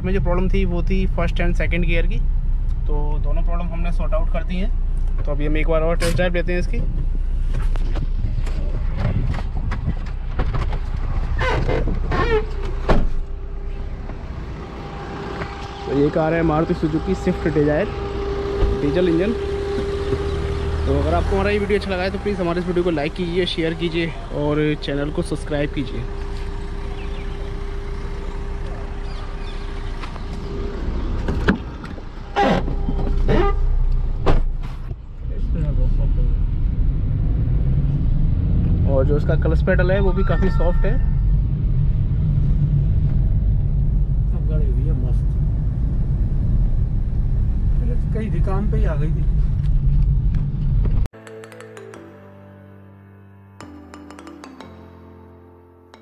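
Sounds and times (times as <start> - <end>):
diesel engine rumble in cabin: 0.0 - 36.5, 38.8 - 51.1
car door opening and shutting: 7.6 - 14.3, 29.1 - 35.0
diesel engine idling: 12.5 - 34.2.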